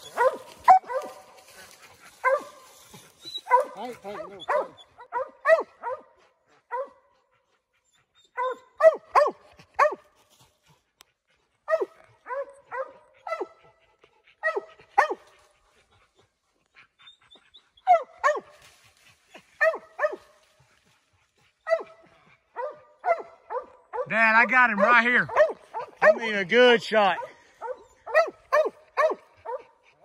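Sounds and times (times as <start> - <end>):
dog barking: 0.0 - 2.8, 3.4 - 7.2, 8.3 - 10.1, 11.6 - 13.8, 14.4 - 15.4, 17.8 - 18.6, 19.6 - 20.4, 21.6 - 29.8.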